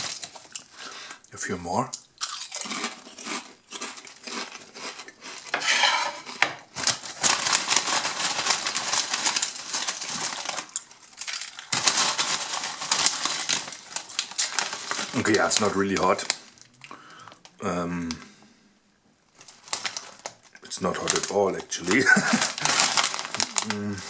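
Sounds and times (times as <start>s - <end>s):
crisp packet crinkling: 0.0s - 0.7s, 6.2s - 17.6s, 19.3s - 24.0s
crisps rattling: 0.0s - 0.7s, 6.7s - 17.5s, 19.4s - 24.0s.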